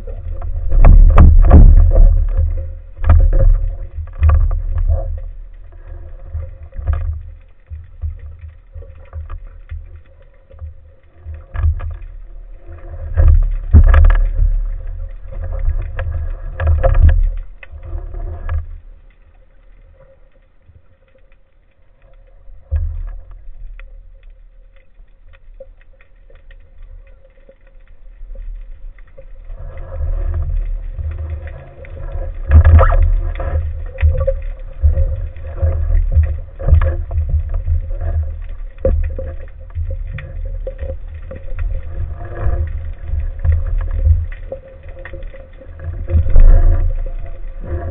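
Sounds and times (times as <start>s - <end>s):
muffled underwater rushing: 0.0s - 47.9s.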